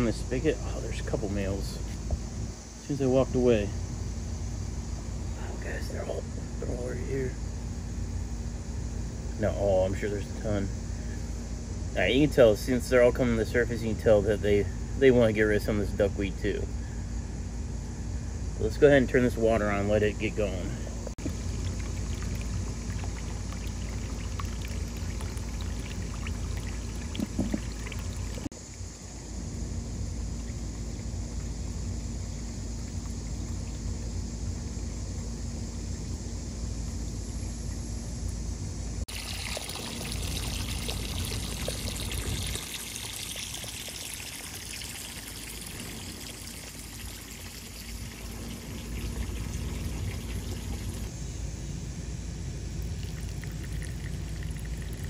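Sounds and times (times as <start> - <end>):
hose water running into pond: 18.6 - 51.1, 52.7 - 55.0.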